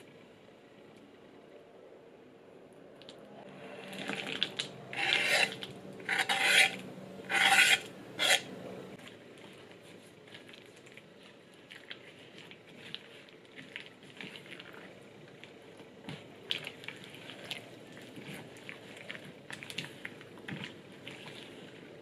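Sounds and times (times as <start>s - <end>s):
spatula scraping wooden board: 4.9s - 8.5s.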